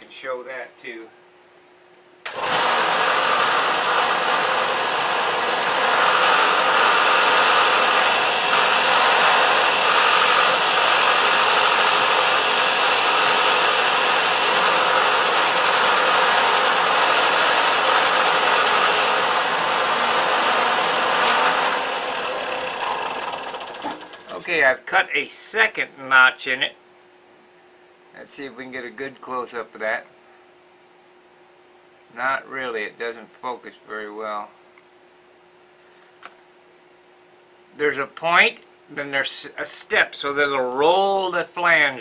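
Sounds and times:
belt sander grinding metal: 0:02.3 - 0:24.5.

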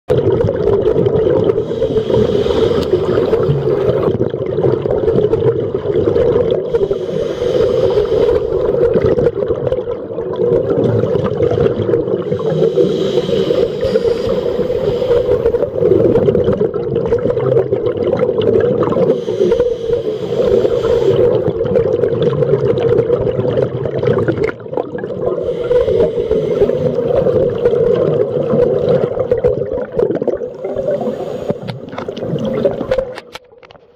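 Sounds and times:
scuba regulator bubbles and hiss: 0:00.2 - 0:33.4
steady hum: 0:12.3 - 0:15.9, 0:19.0 - 0:21.5.

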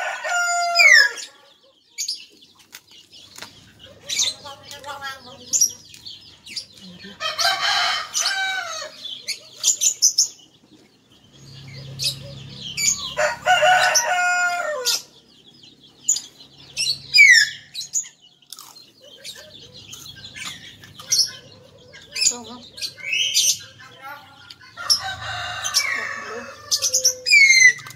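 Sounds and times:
rooster crowing: 0:00.0 - 0:01.4, 0:07.2 - 0:09.1, 0:12.8 - 0:15.2, 0:24.8 - 0:27.8
small birds chirping: 0:00.0 - 0:27.9.

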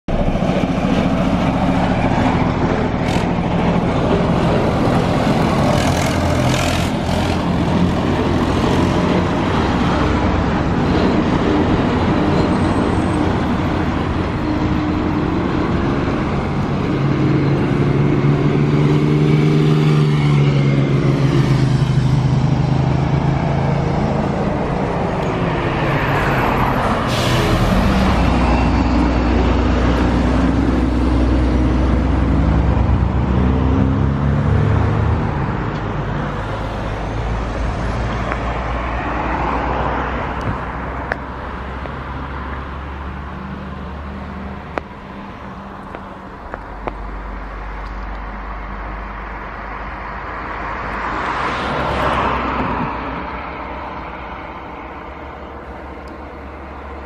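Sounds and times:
tractor engines running: 0:00.1 - 0:33.3
truck deep rumble: 0:00.1 - 0:51.0
cars passing: 0:00.1 - 0:57.0
motorcycles passing: 0:02.2 - 0:10.6.

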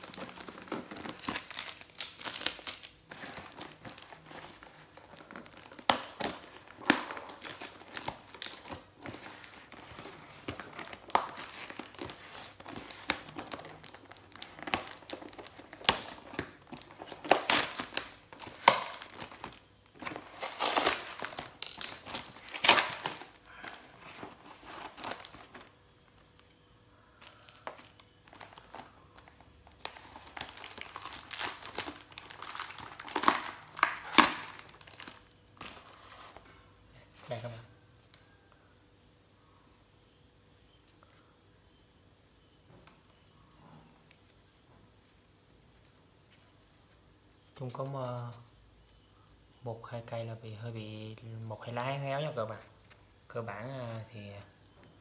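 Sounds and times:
packaging crinkling and ripping: 0:00.0 - 0:36.5.

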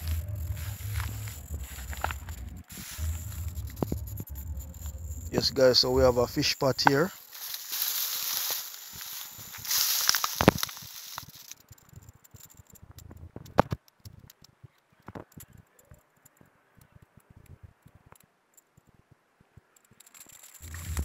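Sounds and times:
faint rustling: 0:00.0 - 0:13.2
small clicks: 0:06.8 - 0:19.0, 0:19.6 - 0:21.0.

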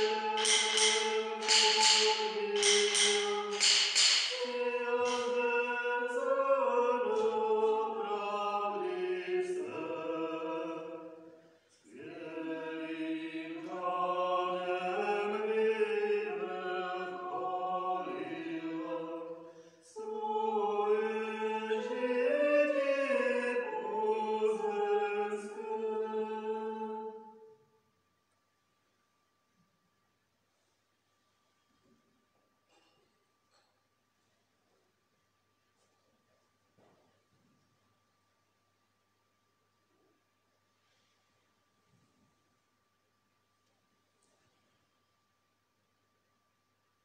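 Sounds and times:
voices singing a chant-like hymn: 0:00.0 - 0:27.6.

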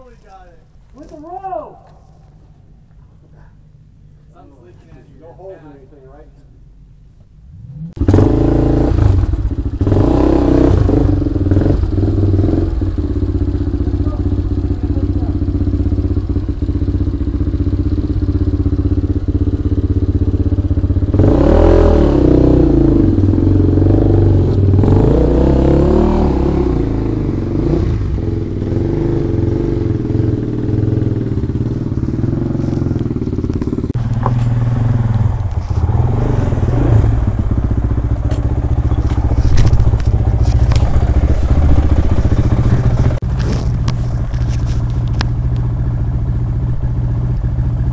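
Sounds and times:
dirt bike engine revving: 0:07.5 - 0:43.8.

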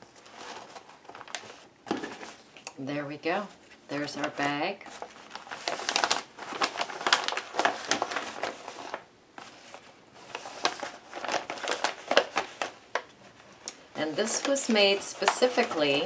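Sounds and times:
paper bag crinkling: 0:00.0 - 0:02.5, 0:03.5 - 0:16.0.

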